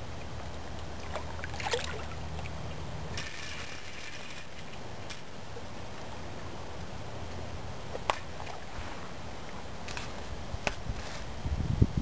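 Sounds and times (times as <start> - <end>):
fish splashing in water: 0.8 - 5.2.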